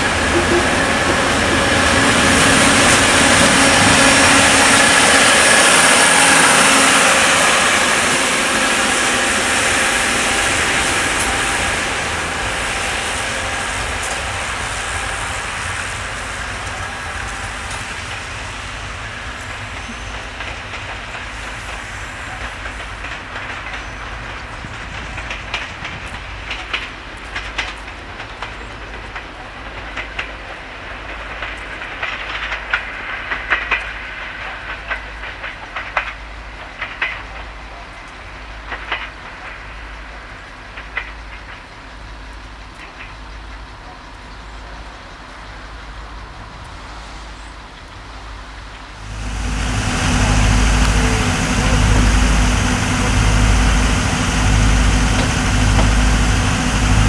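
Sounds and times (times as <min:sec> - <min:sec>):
diesel train engine running: 0:00.0 - 0:57.0
train wheel clicks over rail joints: 0:19.0 - 0:49.1.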